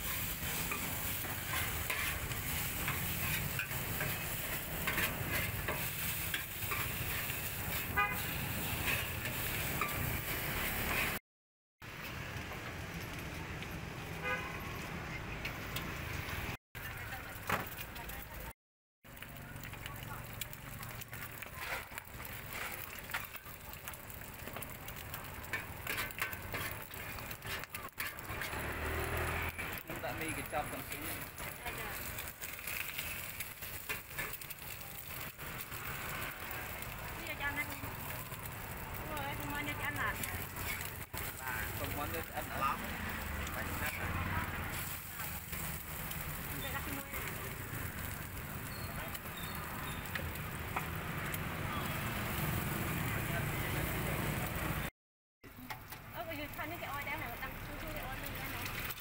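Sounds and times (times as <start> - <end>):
noodles sizzling in a wok: 0.0 - 11.2, 19.1 - 54.9, 55.6 - 59.0
spatula scraping a wok: 0.0 - 11.2, 20.8 - 36.6, 39.2 - 50.9
horn toot: 7.7 - 8.6.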